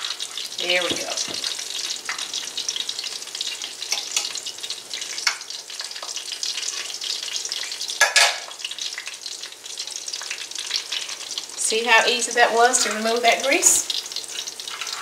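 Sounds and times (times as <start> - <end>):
utensil dipping into grease: 0.0 - 11.6
patties sizzling in hot oil: 0.0 - 15.0.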